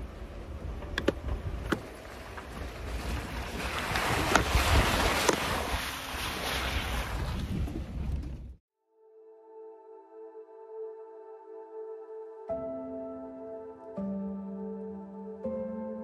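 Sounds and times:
tyres rolling over dirt road: 0.0s - 8.6s
wind rumble on microphone: 0.0s - 8.6s
van splashing through puddle: 1.8s - 8.1s.

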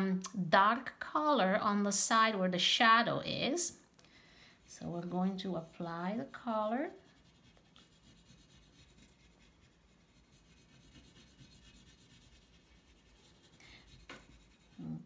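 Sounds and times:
oil pastel rubbing on paper: 4.6s - 15.0s.

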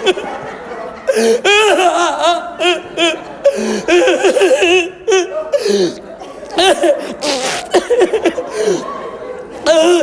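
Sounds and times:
man wailing and sobbing: 1.1s - 6.0s.

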